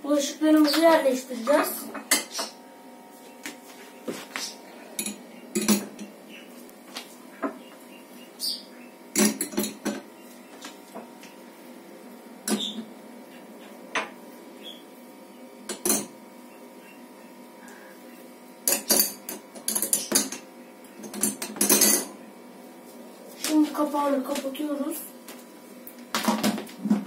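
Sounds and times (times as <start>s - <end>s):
dishes clattering in a dish rack: 5.0s - 6.1s, 9.1s - 10.1s, 15.7s - 16.1s, 18.6s - 22.1s.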